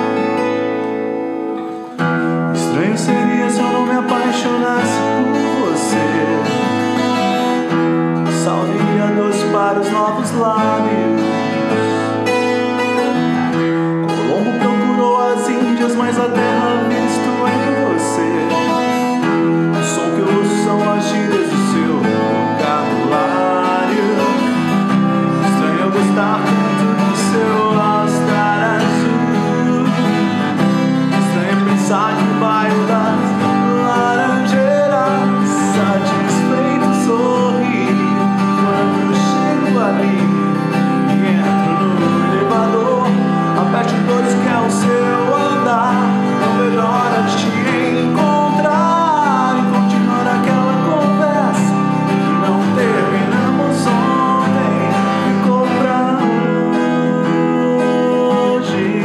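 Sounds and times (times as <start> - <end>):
acoustic guitar strumming: 0.0 - 59.0
man singing: 1.5 - 59.0.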